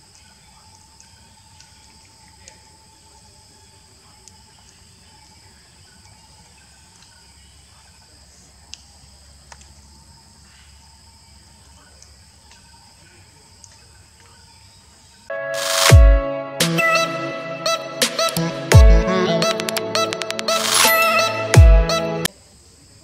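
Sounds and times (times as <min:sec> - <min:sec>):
insects chorus: 0:00.0 - 0:15.3, 0:22.2 - 0:23.0.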